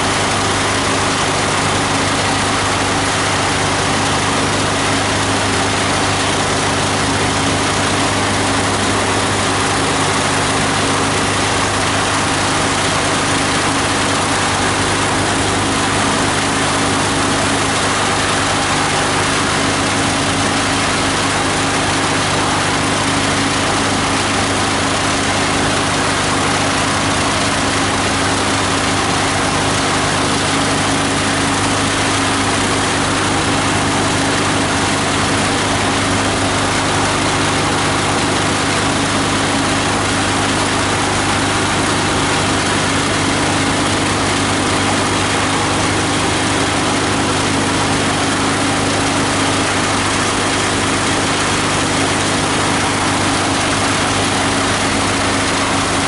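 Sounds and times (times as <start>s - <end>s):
diesel engine driving grinder: 0.0s - 56.0s.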